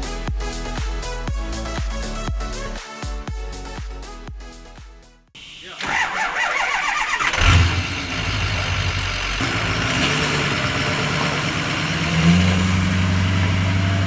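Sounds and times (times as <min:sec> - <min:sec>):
engine running steadily: 0:05.9 - 0:14.0.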